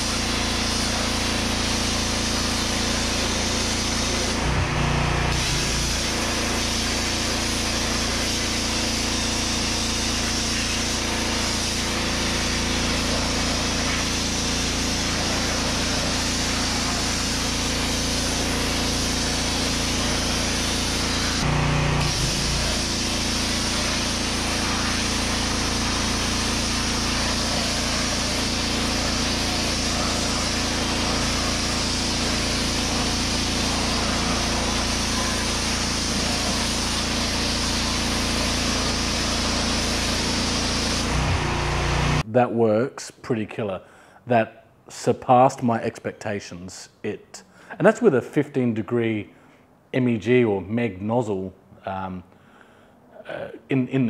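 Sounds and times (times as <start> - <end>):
hiss of water spray: 0.0 - 42.2
pressure washer engine hum: 0.0 - 42.3.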